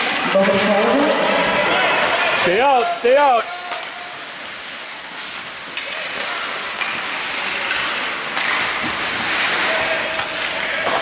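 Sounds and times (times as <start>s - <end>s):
skates scraping on ice: 0.0s - 11.0s
faint clicks of sticks and puck: 3.6s - 11.0s.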